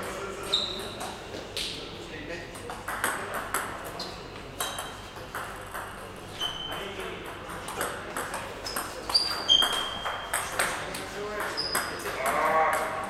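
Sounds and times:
shoes squeaking on floor: 0:00.4 - 0:01.0, 0:06.3 - 0:06.9, 0:08.6 - 0:10.5, 0:11.5 - 0:12.1
table tennis ball bouncing: 0:02.6 - 0:13.0.

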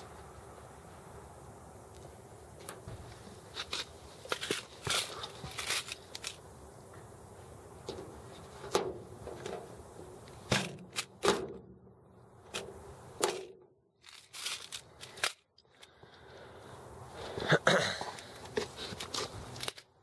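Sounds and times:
rivet gun clicks and cracks: 0:03.6 - 0:06.4, 0:12.5 - 0:16.0, 0:19.0 - 0:20.0.

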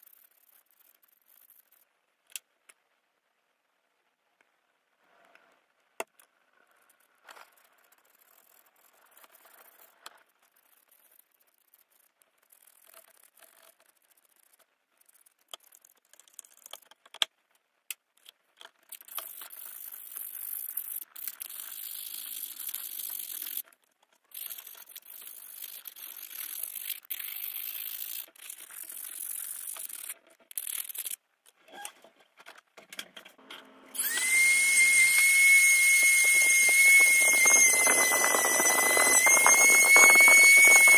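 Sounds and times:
rotary tool high whine: 0:33.5 - 0:40.9.

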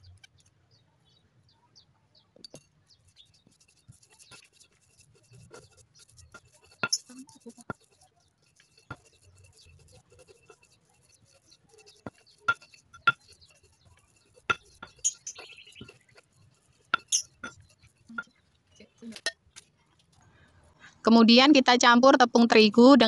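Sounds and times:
stone pestle knocking on mortar: 0:05.5 - 0:08.0, 0:11.8 - 0:16.2, 0:16.8 - 0:17.6.

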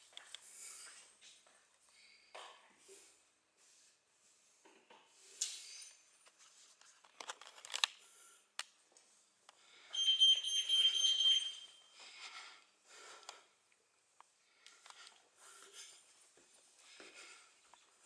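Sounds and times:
high-pitched electronic beep: 0:10.0 - 0:11.8.

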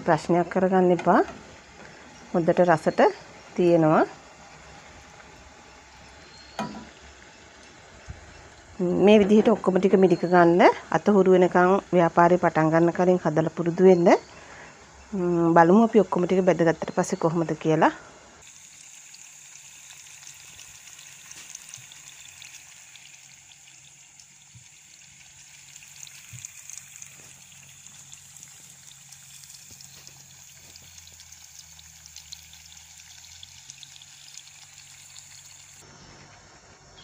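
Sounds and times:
oil sizzling and crackling: 0:00.5 - 0:10.0, 0:18.4 - 0:35.9.

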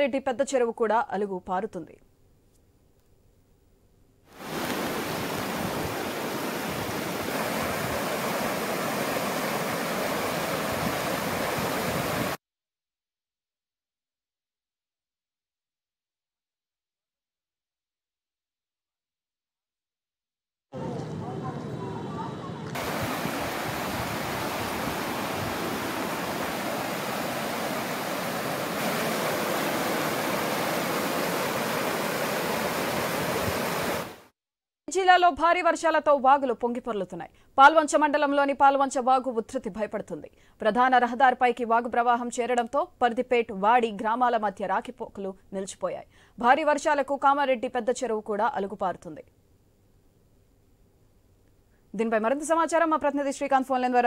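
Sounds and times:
flood water rushing: 0:04.4 - 0:12.4, 0:22.6 - 0:34.2.

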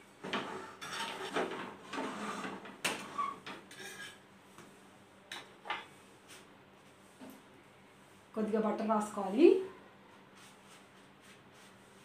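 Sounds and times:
metal spatula scraping griddle: 0:00.2 - 0:04.2.

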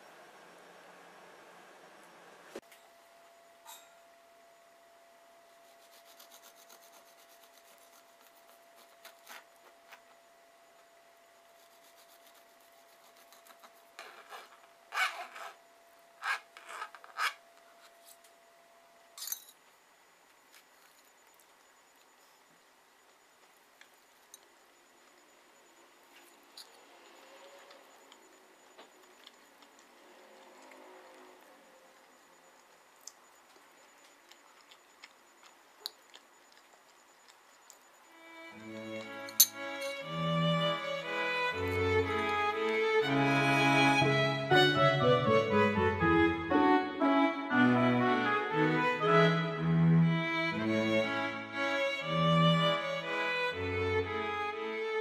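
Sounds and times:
knife sawing through cake: 0:05.7 - 0:09.5, 0:11.6 - 0:15.6
knife scraping cutting board: 0:05.7 - 0:09.5, 0:11.6 - 0:15.6.

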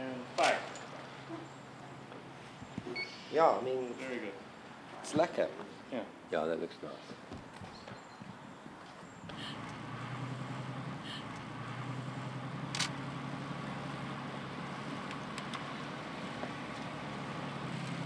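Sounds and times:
road noise: 0:00.0 - 0:18.0
car engine running: 0:09.3 - 0:18.0.

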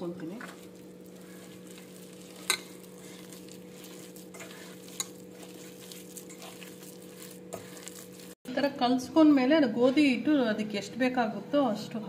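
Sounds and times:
hand mixing food in bowl: 0:00.0 - 0:08.4.

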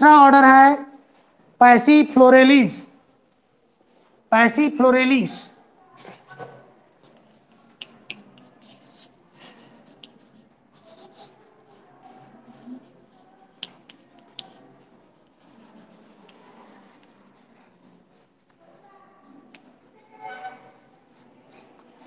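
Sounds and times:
chalk tapping on board: 0:07.1 - 0:14.7, 0:15.3 - 0:17.4
chalk scratching on blackboard: 0:07.1 - 0:21.4.

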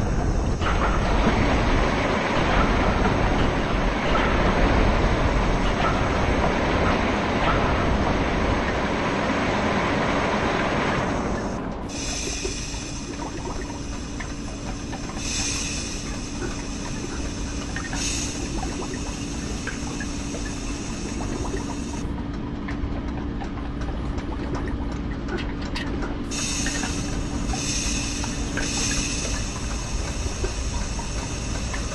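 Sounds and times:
steam hissing: 0:00.0 - 0:06.6, 0:10.9 - 0:22.0, 0:26.3 - 0:31.9
low machine hum: 0:00.0 - 0:31.9.

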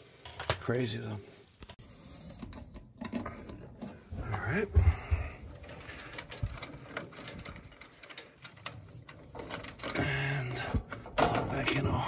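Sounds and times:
plastic connectors clicking and rustling: 0:02.4 - 0:12.0.

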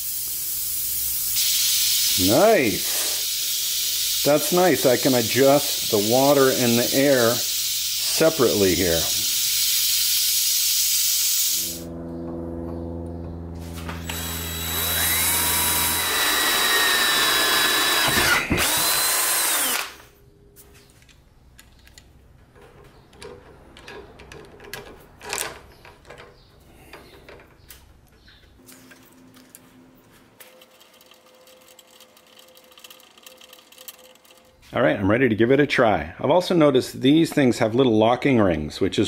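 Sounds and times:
drill whining through metal: 0:13.9 - 0:20.0
small parts clicking and knocking: 0:21.0 - 0:28.2, 0:30.4 - 0:34.6.

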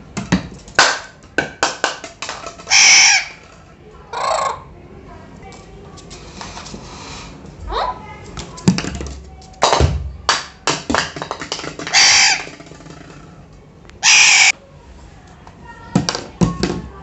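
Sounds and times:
parakeet squawking: 0:02.6 - 0:03.4, 0:04.1 - 0:04.7, 0:07.6 - 0:08.1, 0:11.8 - 0:12.6, 0:14.0 - 0:14.6
plastic bottle knocking on table: 0:08.7 - 0:12.0.

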